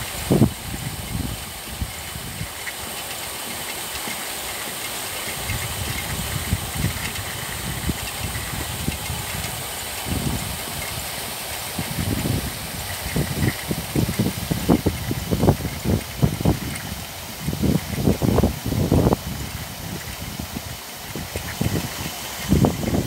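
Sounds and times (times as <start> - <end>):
aerator splashing pond water: 0.0 - 23.0
low buffeting: 0.0 - 23.0.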